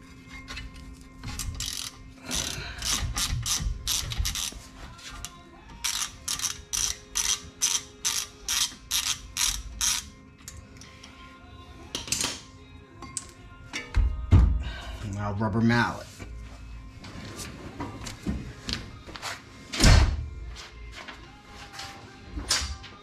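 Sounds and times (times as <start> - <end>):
ratchet wrench clicking: 1.4 - 4.6, 5.8 - 10.6.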